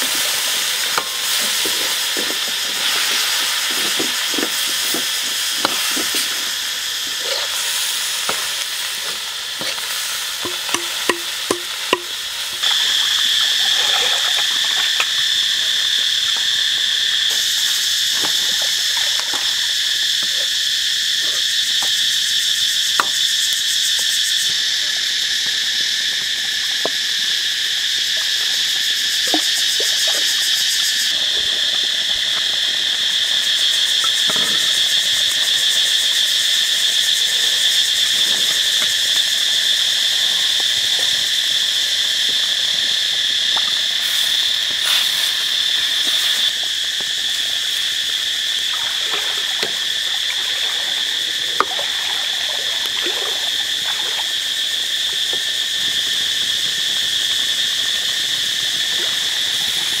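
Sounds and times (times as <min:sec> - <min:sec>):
high-pitched insect chorus: 0:00.0 - 1:00.0.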